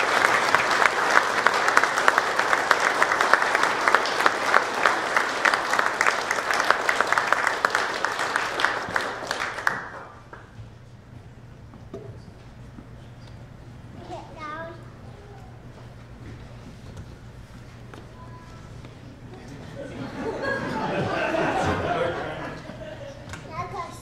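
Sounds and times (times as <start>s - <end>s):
audience applauding: 0.0s - 10.5s, 19.8s - 23.0s
faint low room hum: 0.0s - 24.0s.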